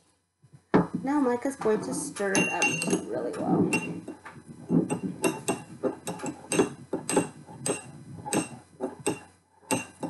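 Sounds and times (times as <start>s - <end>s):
spoon clinking in glass: 2.3s - 3.0s.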